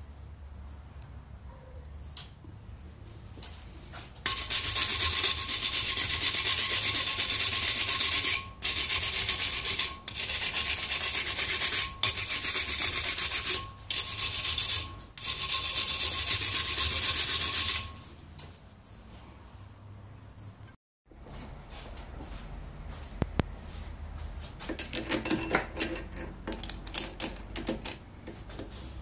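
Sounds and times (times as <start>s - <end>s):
hand file rasping on steel: 4.3s - 18.0s.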